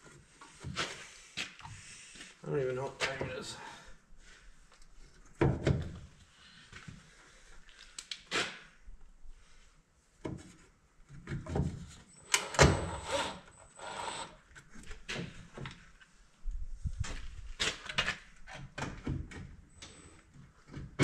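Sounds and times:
clicks and knocks of parts handled: 7.8 - 8.3.

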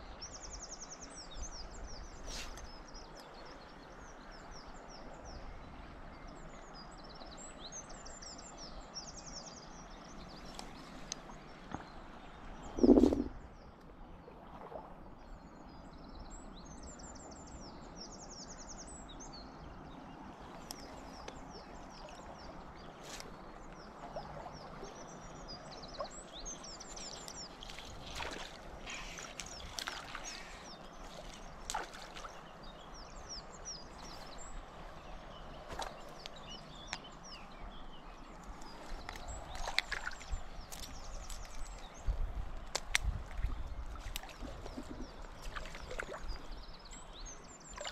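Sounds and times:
flowing water: 0.0 - 47.9
songbirds singing: 0.0 - 47.9
wind: 0.0 - 47.9
low rumbling: 12.6 - 13.5.

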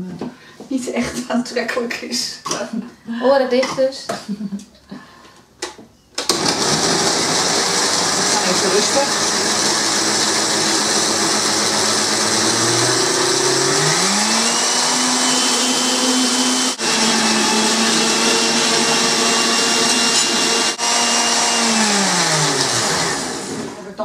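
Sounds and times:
blender running: 6.2 - 23.8.

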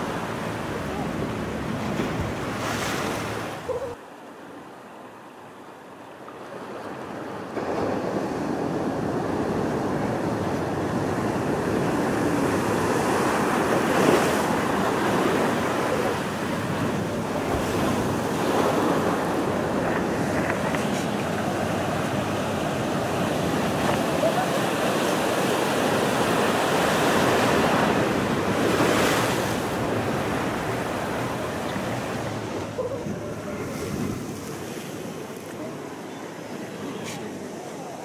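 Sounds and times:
ocean surf washing in: 0.0 - 3.9, 6.5 - 38.0.

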